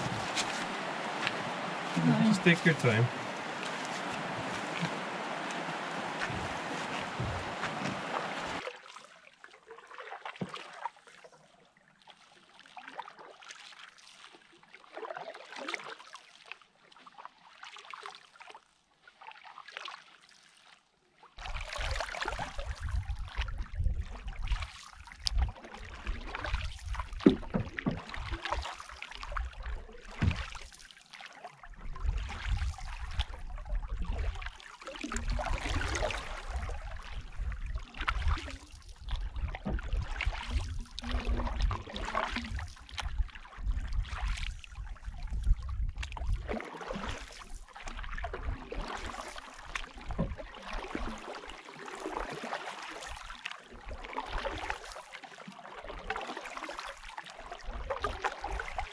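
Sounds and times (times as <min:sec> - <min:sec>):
wind rumble on microphone: 0:00.0 - 0:02.3, 0:03.1 - 0:08.6, 0:21.6 - 0:28.4, 0:31.8 - 0:34.4, 0:35.2 - 0:46.6
paddle strokes splashing in water: 0:00.0 - 0:58.9
water running along hull: 0:00.0 - 0:58.9.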